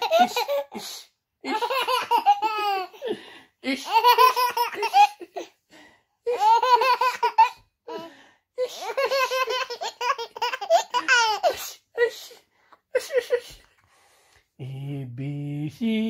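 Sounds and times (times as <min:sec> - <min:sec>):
toddler laughing: 0:00.0 - 0:00.7, 0:01.5 - 0:03.0, 0:03.8 - 0:05.5, 0:06.3 - 0:07.6, 0:08.8 - 0:11.6.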